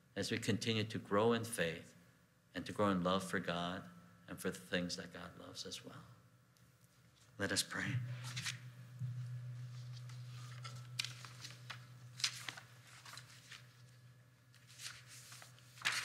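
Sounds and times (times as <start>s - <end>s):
steady low hum: 0.7s - 16.0s
papers rustling: 9.9s - 16.0s
small clicks of papers: 14.5s - 16.0s.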